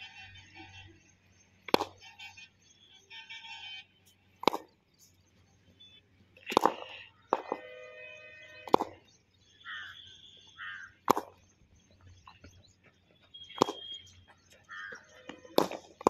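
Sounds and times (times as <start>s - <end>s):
birds chirping: 0.0s - 16.0s
cricket bat striking ball: 1.6s - 2.2s, 4.4s - 4.8s, 6.4s - 7.8s, 8.6s - 9.2s, 10.9s - 11.5s, 12.1s - 16.0s.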